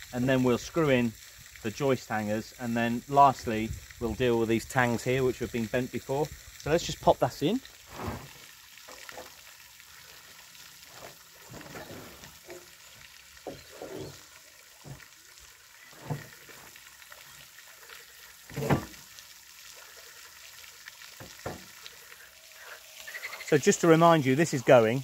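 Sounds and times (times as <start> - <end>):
faint steady hiss: 0.0 - 25.0
wood knocking and scraping: 16.0 - 16.6, 21.2 - 21.7.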